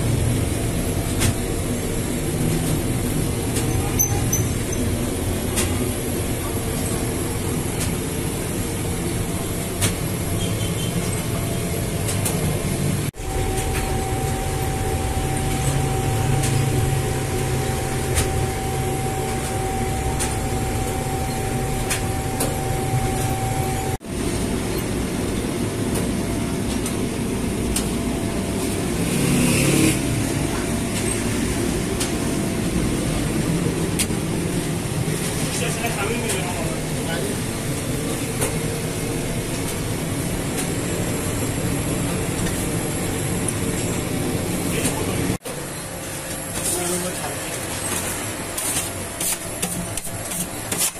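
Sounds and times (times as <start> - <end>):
dough machinery running: 0.0 - 50.9
steady machine whine: 0.0 - 50.9.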